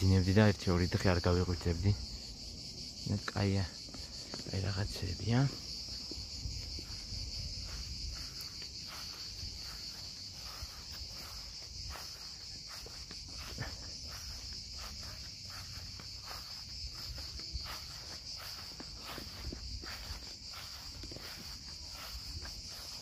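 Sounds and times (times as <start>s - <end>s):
insects buzzing: 0.0s - 23.0s
footsteps on grass: 3.5s - 23.0s.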